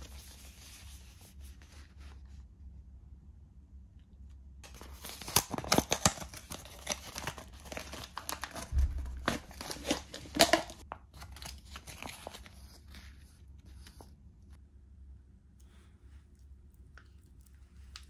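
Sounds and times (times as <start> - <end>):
plastic rustling: 4.6 - 12.8
plastic packaging crinkling and tearing: 4.6 - 13.0.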